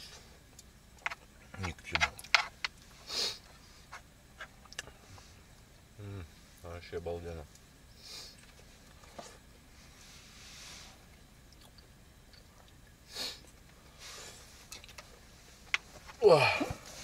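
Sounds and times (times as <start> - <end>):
chewing food: 11.5 - 12.8.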